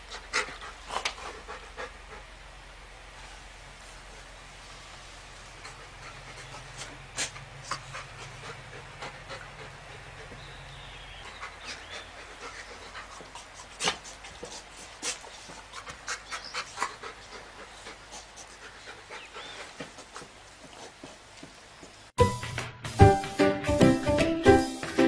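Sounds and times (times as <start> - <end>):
dog panting: 0.0 - 2.4, 5.4 - 21.2
clicks and snuffly noises: 0.1 - 1.4, 12.8 - 17.4.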